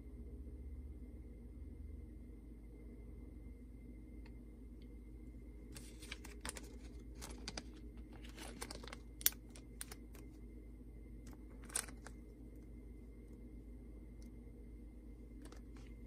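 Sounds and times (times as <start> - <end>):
plastic bag crinkling and clicking: 5.8 - 10.3, 11.3 - 12.2, 15.4 - 16.0.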